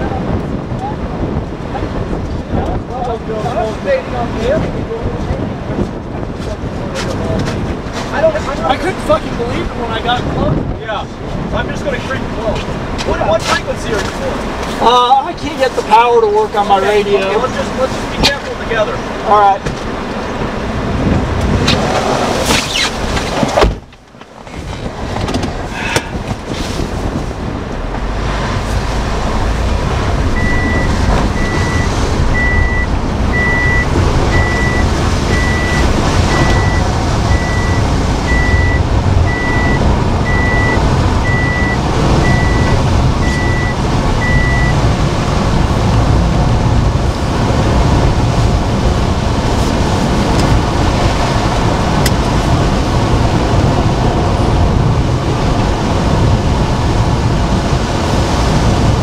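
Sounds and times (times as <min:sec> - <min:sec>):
road and wind noise inside car: 0:00.0 - 0:59.0
rain on windshield: 0:25.9 - 0:59.0
high electronic beep: 0:30.3 - 0:44.8.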